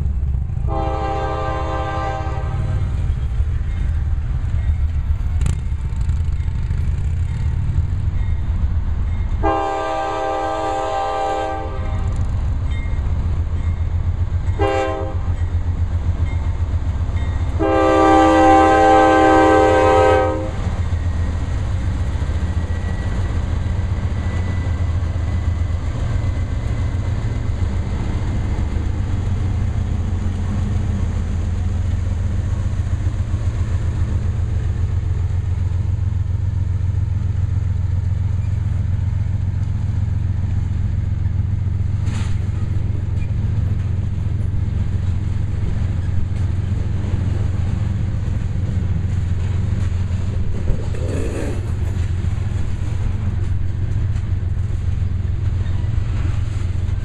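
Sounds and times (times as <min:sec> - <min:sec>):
diesel locomotives rumbling: 0:00.0 - 0:57.0
locomotive air horn blasts: 0:00.7 - 0:03.0, 0:09.4 - 0:12.2, 0:14.6 - 0:15.4, 0:17.5 - 0:20.7
train wheels clicking over rail: 0:42.0 - 0:47.5, 0:48.3 - 0:57.0.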